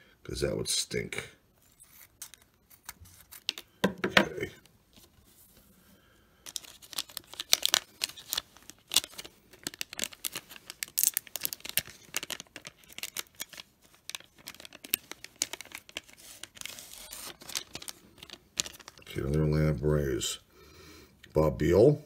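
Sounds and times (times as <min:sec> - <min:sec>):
wrapper crinkling and tearing: 0:06.5 - 0:19.4.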